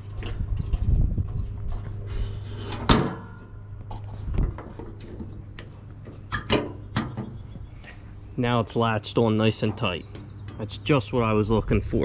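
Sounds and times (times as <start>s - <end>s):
metal hood lid clanking shut: 2.6s - 3.6s, 6.2s - 7.4s.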